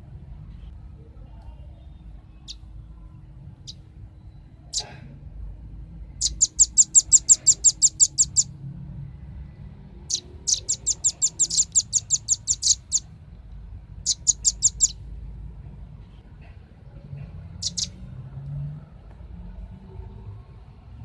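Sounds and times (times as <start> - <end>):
bird calling sharp high chips: 6.2 - 8.5, 10.1 - 13.1, 14.0 - 15.0, 17.6 - 18.0.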